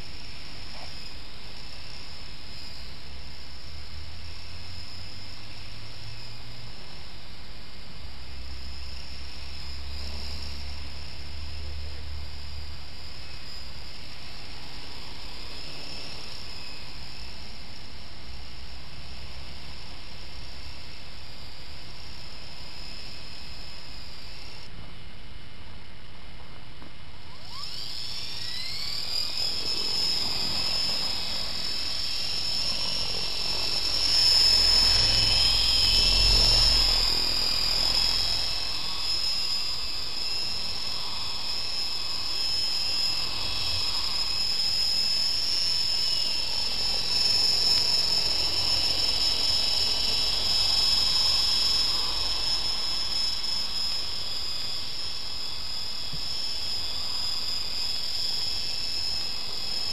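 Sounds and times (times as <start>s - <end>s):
toy helicopter motor whine: 0.0s - 59.9s.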